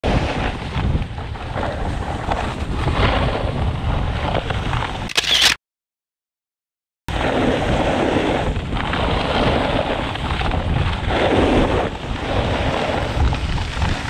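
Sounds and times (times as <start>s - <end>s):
wind buffeting microphone: 0.0s - 5.1s, 7.1s - 14.0s
camera handling rustle: 5.0s - 5.6s.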